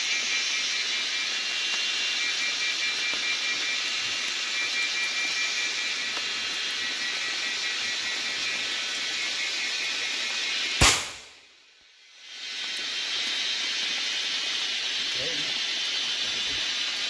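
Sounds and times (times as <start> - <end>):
forest hiss: 0.0 - 17.0
gunshot: 10.8 - 11.4.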